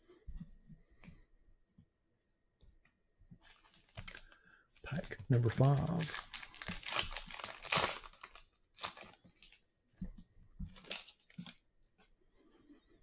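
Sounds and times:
foil wrapper tearing and crinkling: 0:03.5 - 0:04.4, 0:05.0 - 0:09.6, 0:10.8 - 0:11.6.

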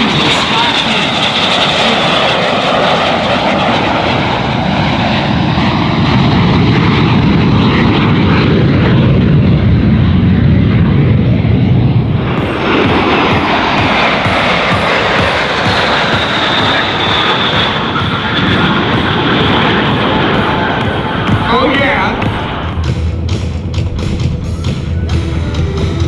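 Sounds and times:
jets flying past: 0:00.0 - 0:26.0.

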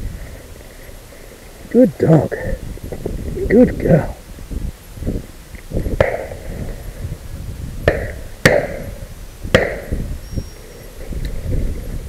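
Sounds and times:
shotgun shots: 0:06.0 - 0:06.6, 0:07.8 - 0:10.1.

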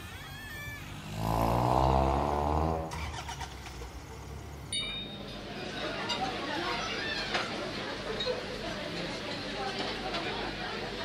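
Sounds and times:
vehicle engine running loudly: 0:00.8 - 0:04.7.

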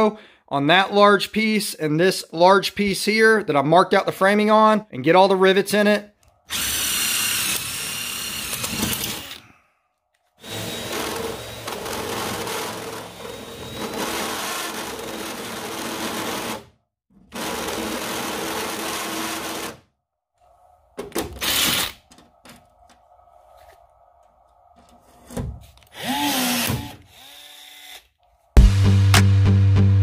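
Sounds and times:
cordless power tool whirring: 0:06.3 - 0:09.5, 0:10.4 - 0:16.6, 0:21.4 - 0:22.0, 0:25.8 - 0:28.3.

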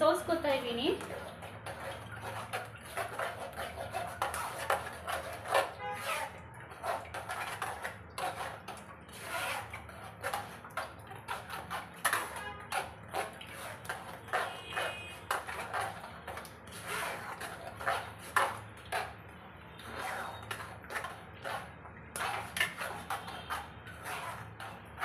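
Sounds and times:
wet pulp squelching against strainer: 0:00.0 - 0:25.0.

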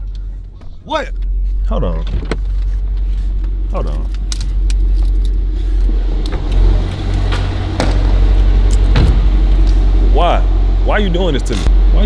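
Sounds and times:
car low rumble: 0:00.0 - 0:12.0.

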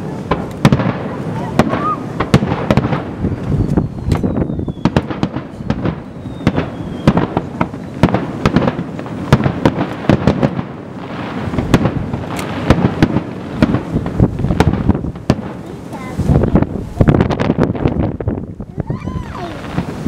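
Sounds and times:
firework shells bursting: 0:00.0 - 0:18.5
falling whistle: 0:03.6 - 0:05.0, 0:05.6 - 0:07.2.

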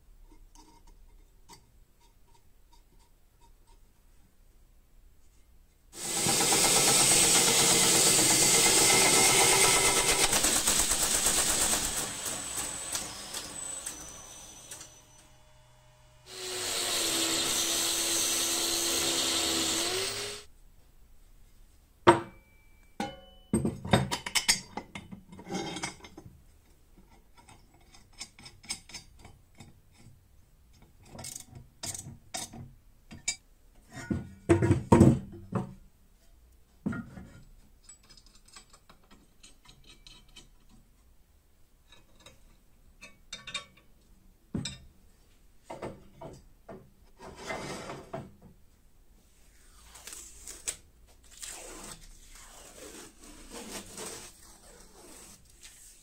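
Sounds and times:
protective film tearing: 0:49.9 - 0:55.8.

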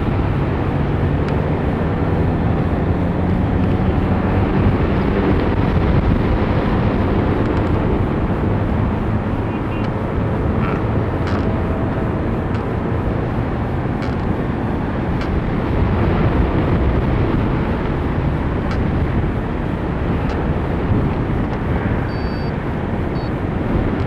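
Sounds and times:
wind rushing over microphone: 0:00.0 - 0:24.0.

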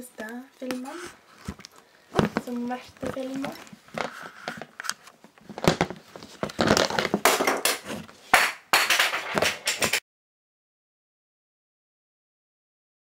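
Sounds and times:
camera handling noise: 0:00.6 - 0:07.2.

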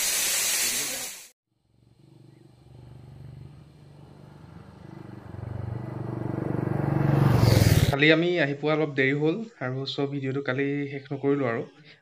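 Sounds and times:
motorcycle engine running: 0:01.6 - 0:08.0.

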